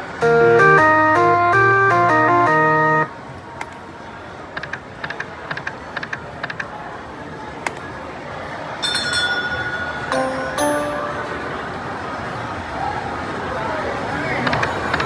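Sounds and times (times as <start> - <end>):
slot machine electronic ticks: 0.2 - 3.1.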